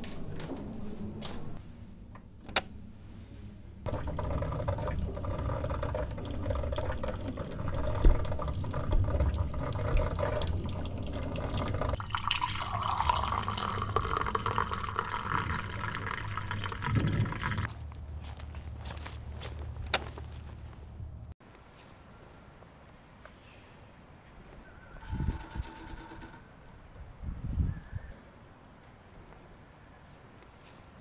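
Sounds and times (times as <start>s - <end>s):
coffee maker gurgling and hissing: 3.9s - 17.7s
coffee pouring into a mug: 3.9s - 17.7s.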